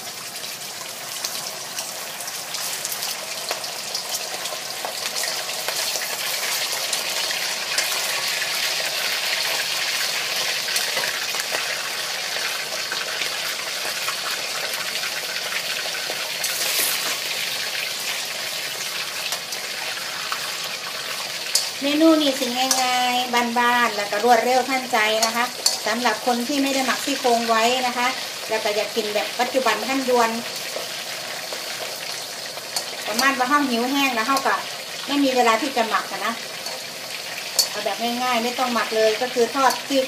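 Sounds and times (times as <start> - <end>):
meat sizzling in oil: 0.0 - 40.0.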